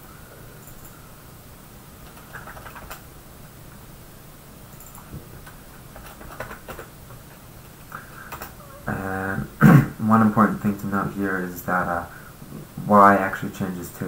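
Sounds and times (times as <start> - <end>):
faint low hum: 0.0 - 14.0
keyboard typing: 2.0 - 3.1, 4.7 - 8.6.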